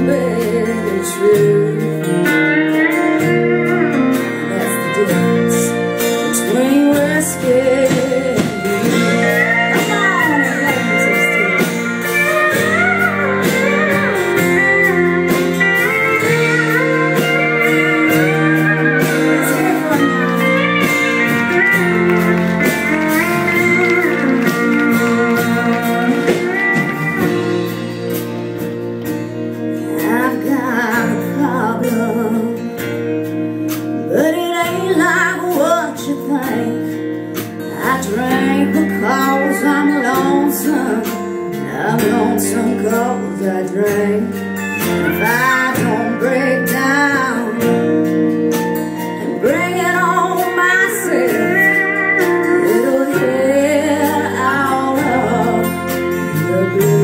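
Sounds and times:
country band playing: 0.0 - 57.0
pedal steel guitar gliding notes: 0.0 - 57.0.

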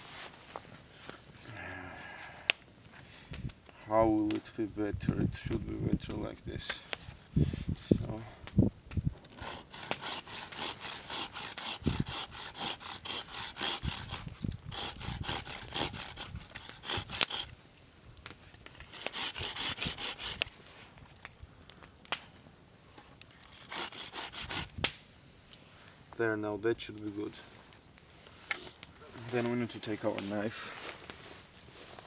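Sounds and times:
hand saw cutting wood: 9.3 - 17.5, 18.8 - 20.4, 23.5 - 24.7.

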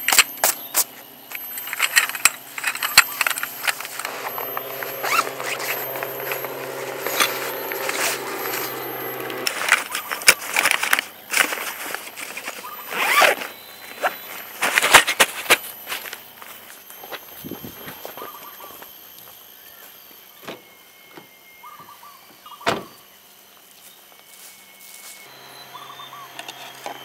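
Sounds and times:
low steady hum: 0.0 - 19.8.

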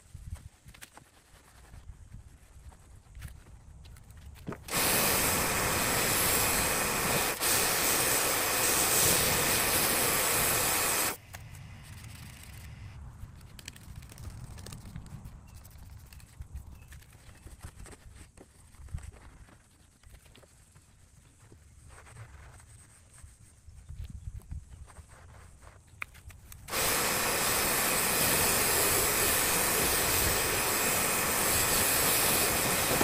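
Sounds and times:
pressure washer spraying water: 4.7 - 11.2, 26.7 - 33.0.

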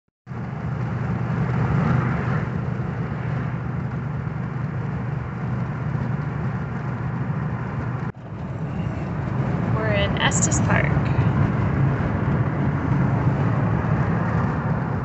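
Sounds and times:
car engine and tyre noise: 0.3 - 15.0.

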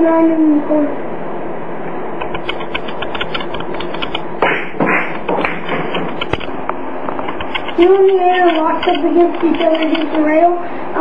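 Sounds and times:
steady background hiss: 0.0 - 11.0
billiard balls clacking: 3.7 - 6.4.

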